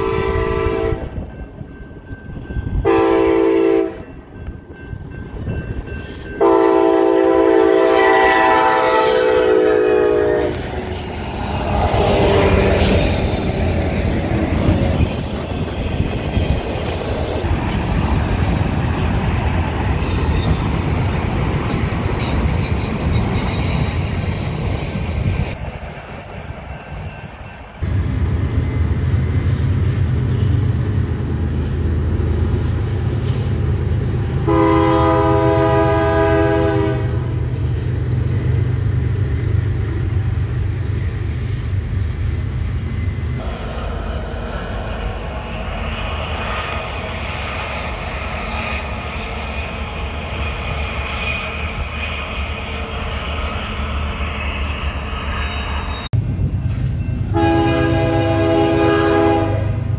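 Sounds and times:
train horn blast: 0.0 - 1.3, 2.8 - 4.1, 6.4 - 10.9, 11.6 - 13.0, 34.4 - 37.4, 57.3 - 59.9
distant freight train rumble: 0.0 - 59.9
train rumble and wheel-on-rail noise: 0.0 - 59.9.

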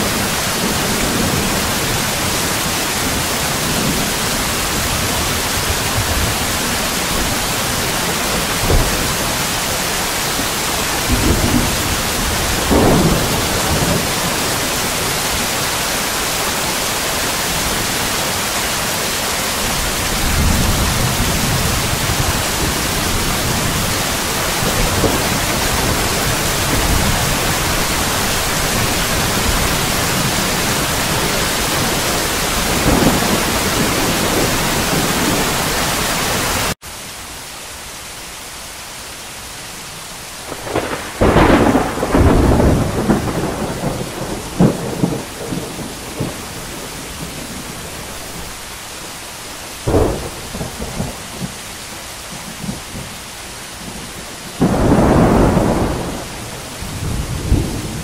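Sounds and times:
rolling thunder: 0.0 - 9.7, 10.8 - 15.7, 19.7 - 35.9, 40.5 - 47.9, 49.8 - 51.6, 53.8 - 58.0
heavy rain: 0.0 - 58.0.

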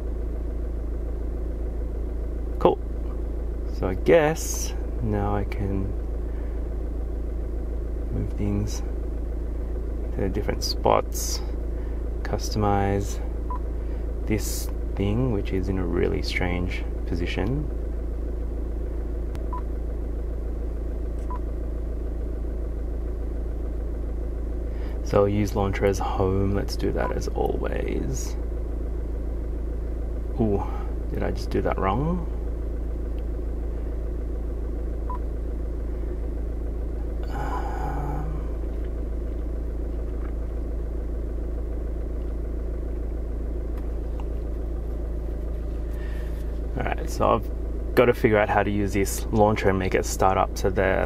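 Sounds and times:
low car cabin rumble: 0.0 - 51.0.

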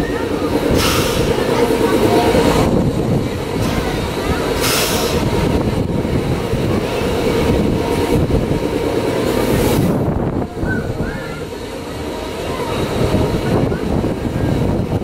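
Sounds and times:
ride machinery rumbling: 0.0 - 15.0
short rush of hiss: 4.6 - 5.2.

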